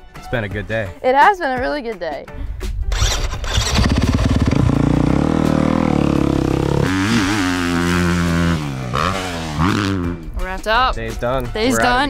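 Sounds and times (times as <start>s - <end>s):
motocross bike engine revving: 2.9s - 10.3s.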